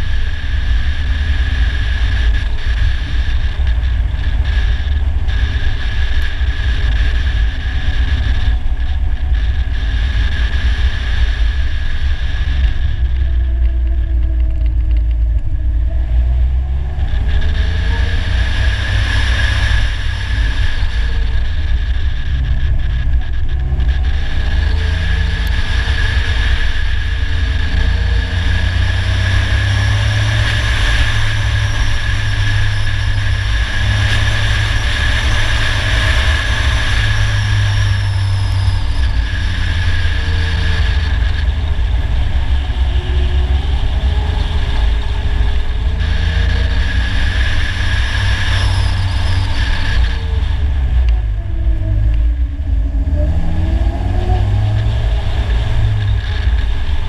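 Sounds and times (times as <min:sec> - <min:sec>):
car engine revving: 0:00.0 - 0:57.0.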